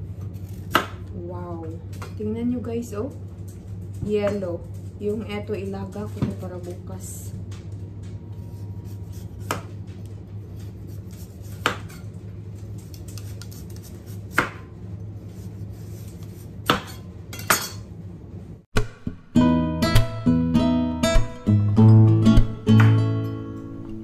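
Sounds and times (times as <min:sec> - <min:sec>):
knife slicing sweet potato: 0:10.6 - 0:12.0, 0:12.9 - 0:14.7.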